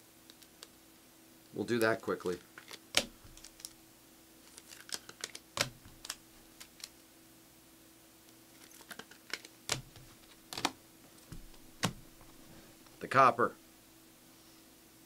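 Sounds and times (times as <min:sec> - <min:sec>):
faint steady hum: 0:00.0 - 0:15.0
trading cards being handled: 0:01.7 - 0:03.8, 0:04.4 - 0:07.0, 0:08.5 - 0:12.6.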